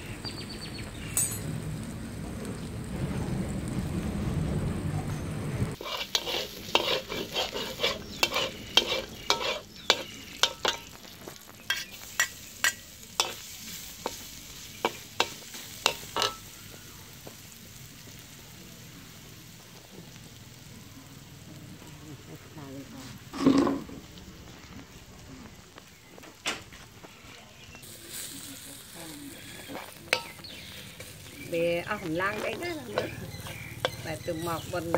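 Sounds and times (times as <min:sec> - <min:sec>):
meat sizzling: 0:05.7 - 0:34.9
metal spatula scraping a wok: 0:05.8 - 0:16.6, 0:23.2 - 0:23.9, 0:27.8 - 0:34.9.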